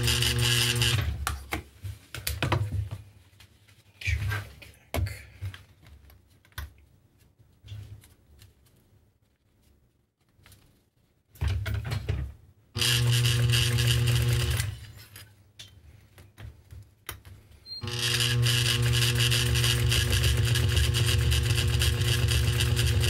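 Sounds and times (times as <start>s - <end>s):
sewing machine stitching: 0.0s - 1.2s, 12.8s - 14.9s, 17.8s - 23.0s.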